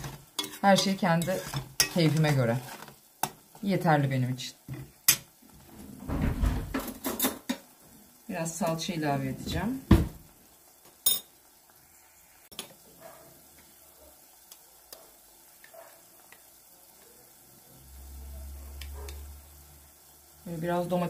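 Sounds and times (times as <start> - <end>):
onions frying faintly: 0.0 - 21.0
spoon clinking on metal: 11.1 - 11.3.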